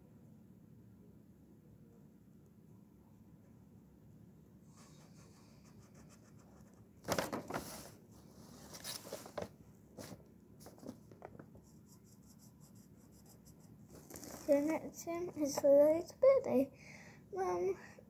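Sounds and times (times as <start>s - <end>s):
marker scratching on paper: 4.7s - 6.9s, 11.5s - 14.8s.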